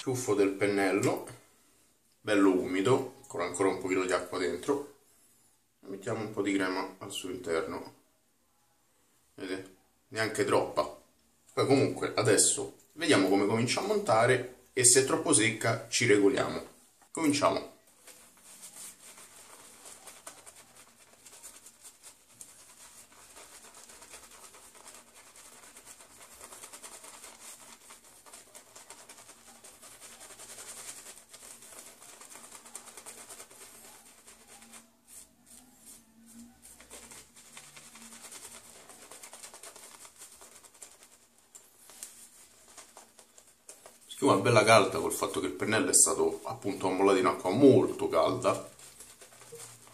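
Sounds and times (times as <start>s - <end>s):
shaving brush scratchy rubbing: 11.7s - 49.9s.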